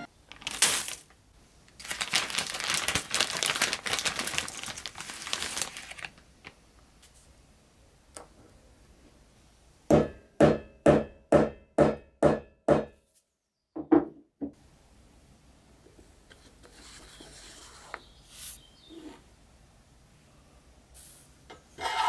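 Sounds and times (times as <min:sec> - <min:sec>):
hammer striking metal rod: 0:09.9 - 0:13.0.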